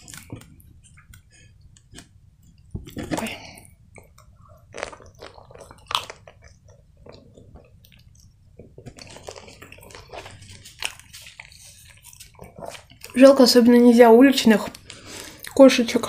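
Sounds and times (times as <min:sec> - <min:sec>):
chewing pizza mouth sounds: 0:03.9 - 0:13.2.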